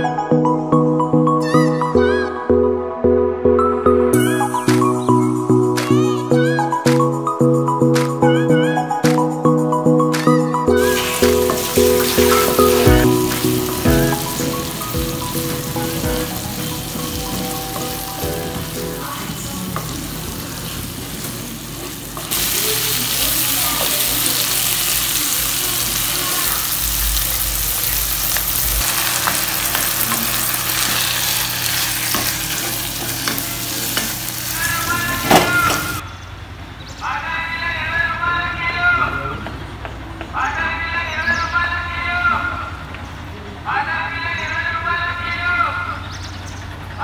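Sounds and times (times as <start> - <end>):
food sizzling in hot oil: 10.8 - 36.0.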